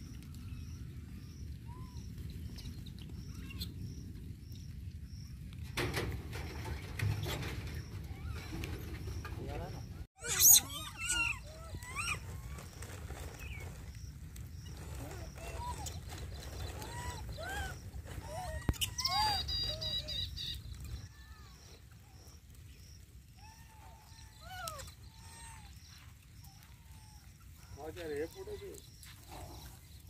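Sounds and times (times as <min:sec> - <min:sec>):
monkeys chirping coo calls: 0:10.2 - 0:12.9, 0:14.8 - 0:20.5.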